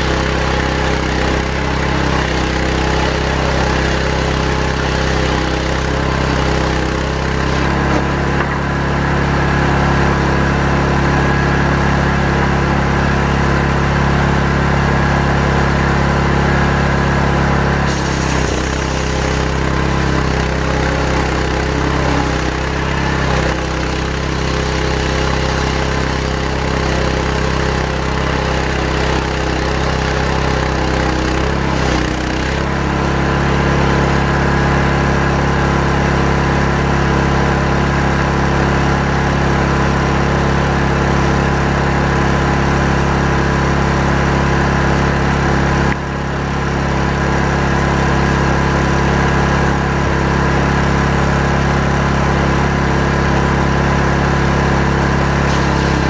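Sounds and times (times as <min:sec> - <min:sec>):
chainsaw ripping a log: 0:00.0 - 0:09.6, 0:17.6 - 0:33.6, 0:54.4 - 0:56.0.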